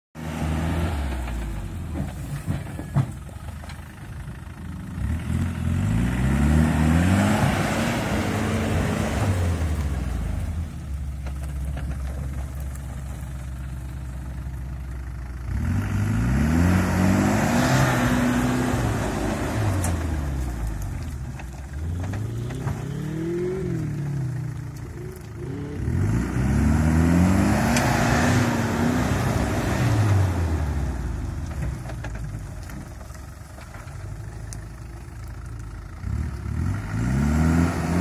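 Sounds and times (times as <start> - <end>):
engine revving under load: 0.2 - 2.1, 4.9 - 10.7, 15.4 - 31.6, 36.0 - 38.0.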